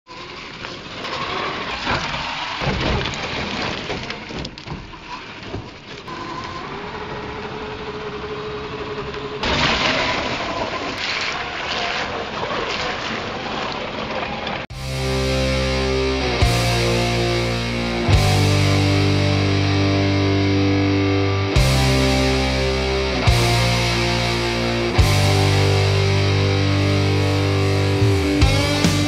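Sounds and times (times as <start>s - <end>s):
tyres churning through gravel: 0.1s - 5.9s
water splashing: 9.4s - 14.7s.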